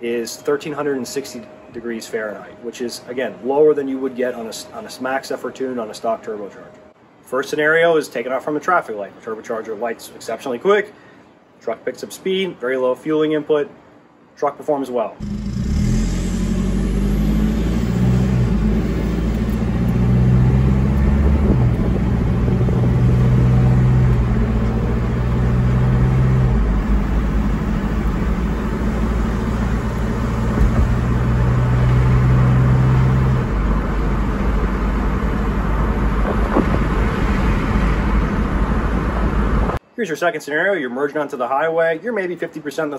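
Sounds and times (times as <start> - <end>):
road noise: 0.0 - 7.8, 15.1 - 39.9
diesel truck engine accelerating: 15.2 - 39.8.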